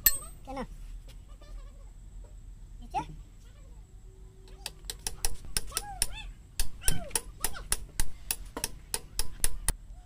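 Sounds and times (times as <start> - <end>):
hammer striking steel: 0.0 - 0.4.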